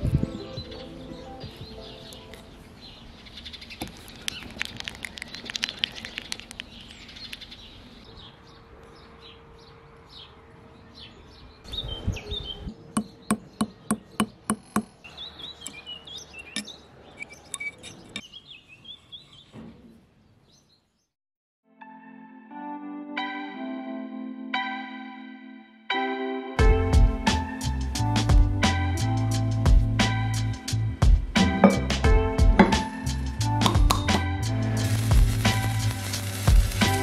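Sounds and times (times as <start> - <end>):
birds chirping: 0.0 - 21.1.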